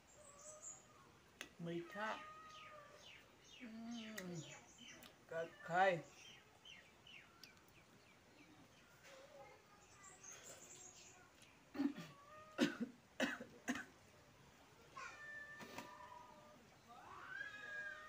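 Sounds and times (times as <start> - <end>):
person coughing: 11.8 - 13.9.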